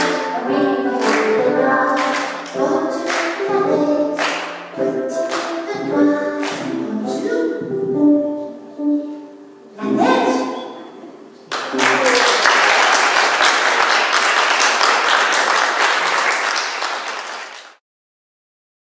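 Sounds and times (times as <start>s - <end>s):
person singing: 0.0s - 10.1s
audience applauding: 0.9s - 3.4s, 11.5s - 17.8s.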